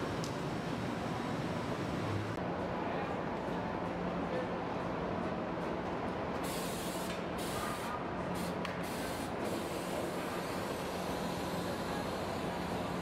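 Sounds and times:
compressed air hissing: 6.5 - 11.6.

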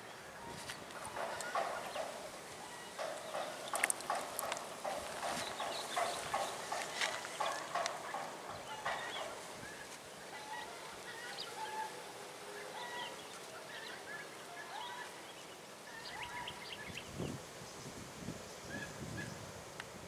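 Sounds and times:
birds calling: 0.0 - 19.5
handling noise: 0.5 - 10.1.

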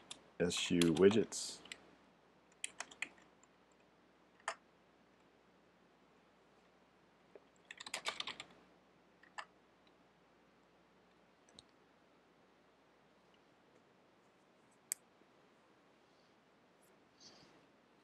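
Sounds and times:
keyboard typing: 0.0 - 1.8, 2.5 - 3.5, 7.6 - 8.6.

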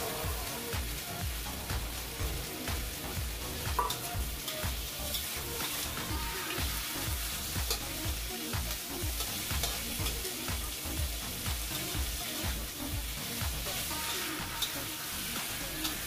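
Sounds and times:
meat sizzling in oil: 0.0 - 16.0
metal spatula scraping wok: 3.8 - 8.0.

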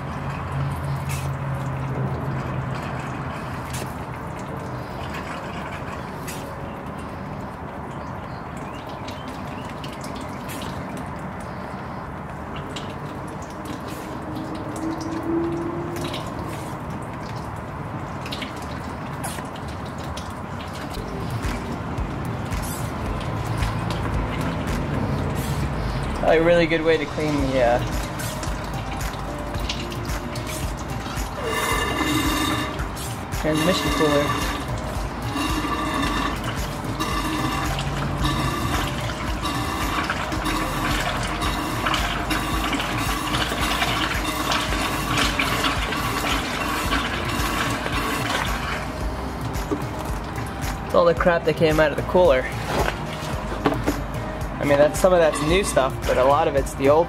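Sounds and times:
fluid pouring and splashing: 0.0 - 57.0
background music: 20.9 - 57.0.

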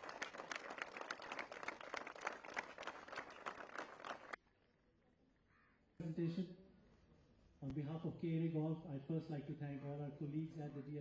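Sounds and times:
audience applause: 0.0 - 4.4.

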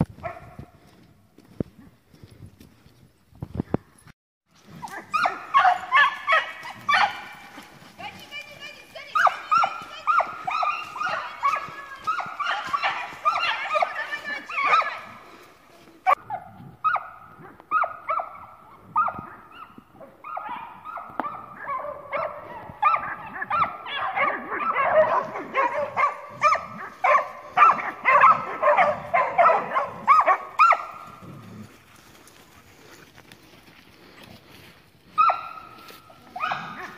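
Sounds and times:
dogs barking and yelping: 4.6 - 8.0, 9.0 - 31.7, 35.1 - 36.9.

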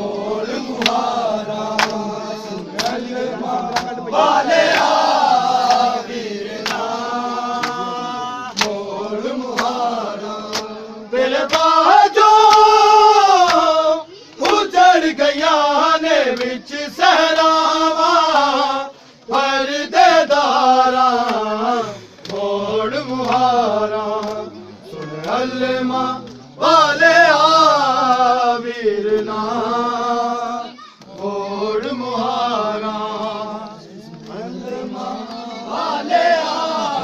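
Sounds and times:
men chanting a lament: 0.0 - 37.0
hands slapping bare chests: 0.2 - 8.9, 9.5 - 14.7, 22.2 - 23.6, 24.2 - 25.5.

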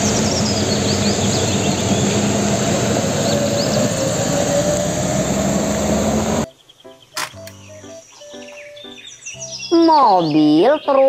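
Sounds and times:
tyres hissing on wet road: 0.0 - 6.4
truck engine running: 0.0 - 6.5.

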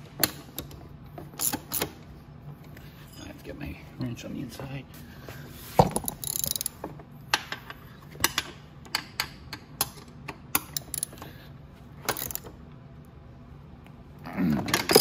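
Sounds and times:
ratchet wrench clicking: 6.0 - 6.8, 10.6 - 11.2, 12.1 - 12.5.

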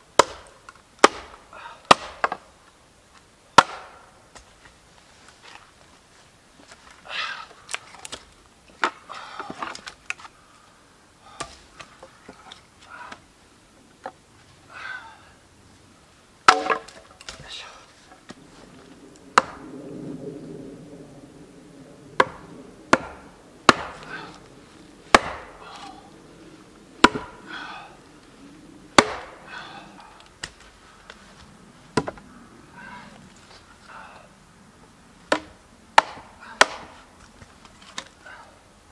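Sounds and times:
axe chopping log: 0.2 - 2.4, 3.6 - 4.5, 16.5 - 17.4, 19.4 - 19.6, 22.2 - 24.4, 25.1 - 26.0, 27.0 - 27.4, 29.0 - 29.5, 32.0 - 32.2, 35.3 - 37.0
logs scraping: 3.1 - 15.9, 16.5 - 34.2, 35.2 - 38.4
wooden logs clacking: 6.7 - 10.4, 16.4 - 18.4, 19.4 - 19.6, 22.2 - 26.1, 27.0 - 27.8, 29.0 - 30.8, 35.2 - 38.2.

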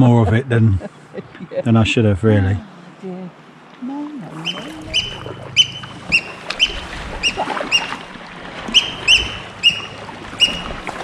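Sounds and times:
faint water and paddling: 0.0 - 11.0
high piping bird calls: 4.4 - 8.1, 8.7 - 10.9.

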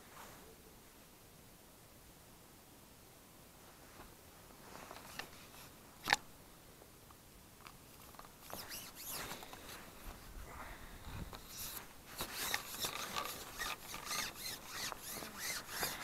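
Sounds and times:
rustle of clothing: 0.0 - 0.7, 3.5 - 6.2, 7.8 - 16.0
light scratching and rustling: 3.6 - 6.2, 7.6 - 16.0.

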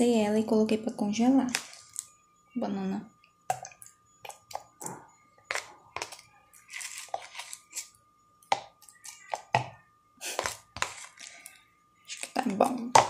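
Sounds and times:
metal spoon scraping a cup: 5.5 - 7.9.

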